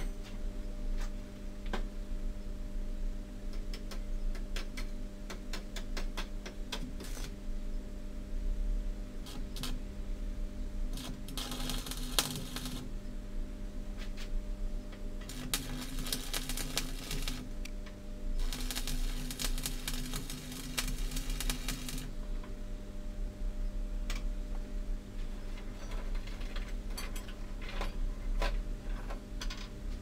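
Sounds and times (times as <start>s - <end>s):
steady low hum: 0.0s - 30.0s
crackling welding arc: 7.0s - 7.4s, 9.2s - 9.8s, 10.9s - 12.9s, 15.2s - 17.7s, 18.4s - 22.2s.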